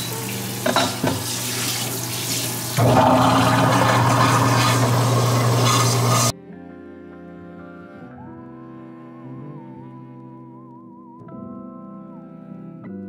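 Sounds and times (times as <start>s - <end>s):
quiet background music: 0.0s - 4.2s, 6.3s - 13.0s
water spraying into steel sink: 0.0s - 6.3s.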